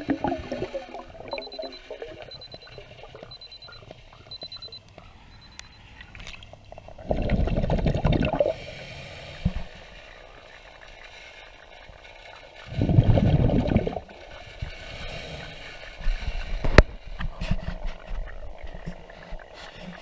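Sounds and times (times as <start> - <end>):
underwater bubbling and gurgling: 0.0 - 20.0
high electronic beeps: 1.3 - 5.8.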